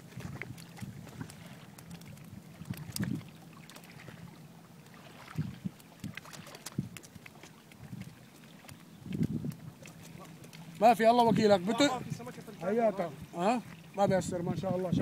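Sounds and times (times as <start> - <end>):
wind on microphone: 0.0 - 3.4, 5.1 - 7.0, 7.8 - 10.3, 11.0 - 12.3, 13.0 - 15.0
waves lapping on rocks: 0.0 - 15.0.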